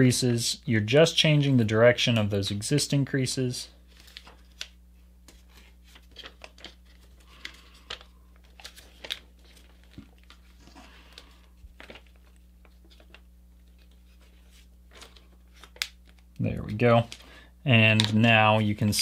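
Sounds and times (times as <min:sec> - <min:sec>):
steady low hum: 0:00.0 - 0:19.0
paper crinkling: 0:03.8 - 0:16.3.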